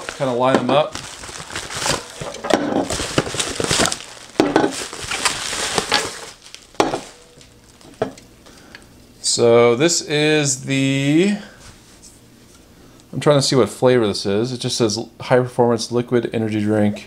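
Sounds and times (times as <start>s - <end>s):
bubble wrap crinkling: 0.0s - 8.6s
cans knocking on countertop: 4.4s - 4.7s, 6.8s - 7.1s.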